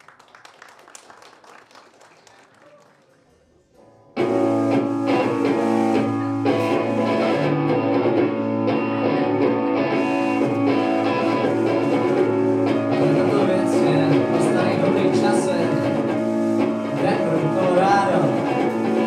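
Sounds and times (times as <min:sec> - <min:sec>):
live rock band playing: 0:04.2 - 0:19.0.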